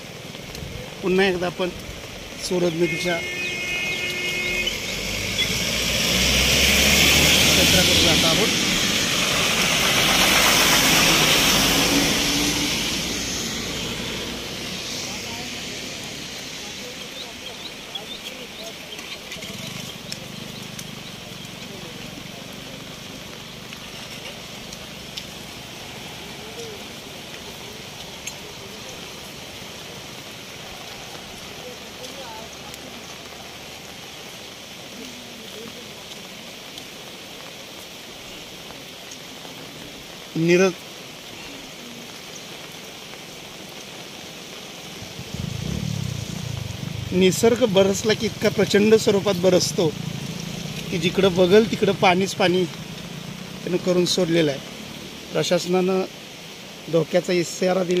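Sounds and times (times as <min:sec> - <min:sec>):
rain: 0:00.0 - 0:58.0
river rushing: 0:00.0 - 0:58.0
tyre hiss on wet road: 0:00.0 - 0:58.0
bus engine passing: 0:04.8 - 0:17.0.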